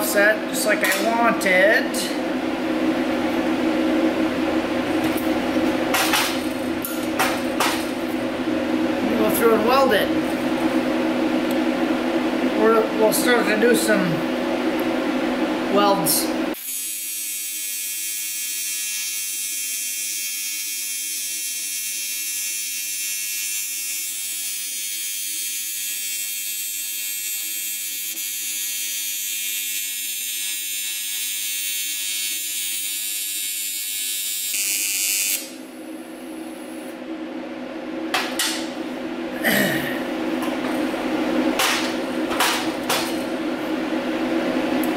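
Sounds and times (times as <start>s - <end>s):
welding arc buzzing hiss: 2.9s - 11.6s, 15.8s - 37.0s.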